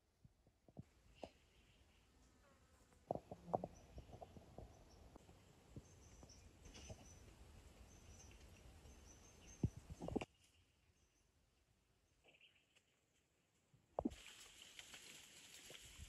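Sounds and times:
small birds chirping: 1.1 - 2.1, 3.2 - 11.4, 12.0 - 13.0.

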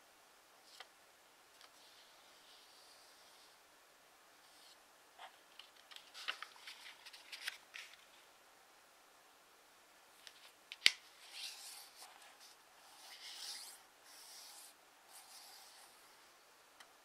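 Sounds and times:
paper folding crackles: 5.5 - 8.2.

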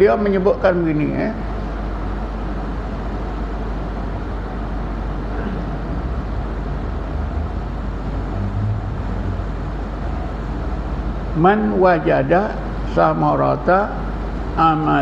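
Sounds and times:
low rumble: 5.7 - 11.3.

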